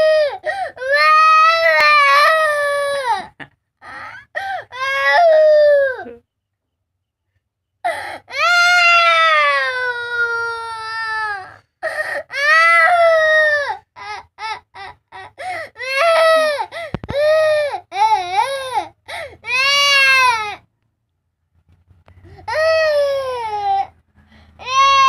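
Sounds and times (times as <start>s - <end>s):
toddler crying: 24.6s - 25.0s.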